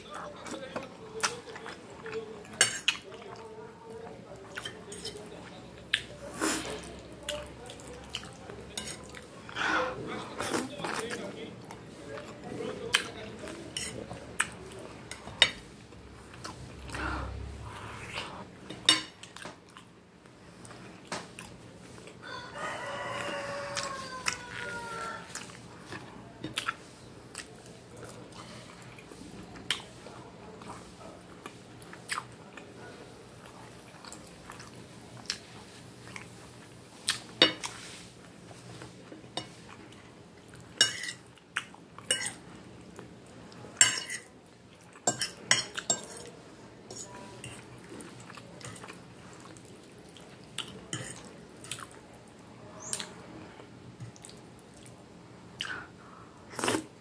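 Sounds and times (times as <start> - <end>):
chewing: 0.2 - 19.9, 20.6 - 30.0, 30.6 - 32.8, 33.4 - 55.9
cutlery clinking on a plate: 40.8 - 41.2, 43.8 - 44.3, 45.0 - 46.3.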